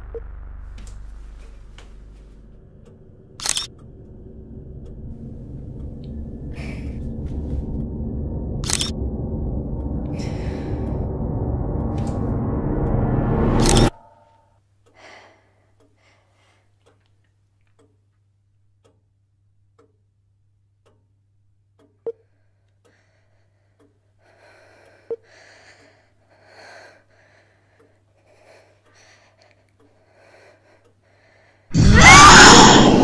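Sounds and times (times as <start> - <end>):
loud jump-scare noise: 0.0 - 14.4, 31.7 - 33.0
clock ticking: 0.1 - 10.1, 16.8 - 23.0
sharp clicks: 2.9 - 3.9, 8.6 - 9.0, 13.6 - 13.9
soft breaths: 14.2 - 17.0, 22.2 - 31.7.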